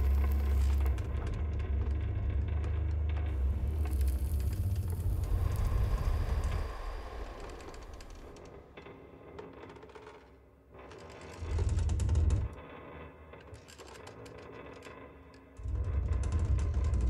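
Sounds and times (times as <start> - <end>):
deep low swell: 0.0 - 9.9.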